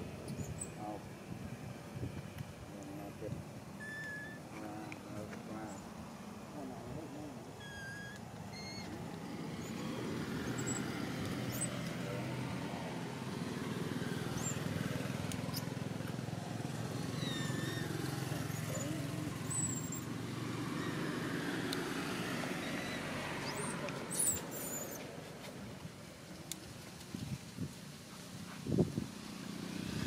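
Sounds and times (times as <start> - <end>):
low rumble of road traffic: 0.0 - 30.0
high squeaks and chirps: 3.8 - 4.5, 7.6 - 11.8, 17.1 - 20.1, 22.6 - 25.0.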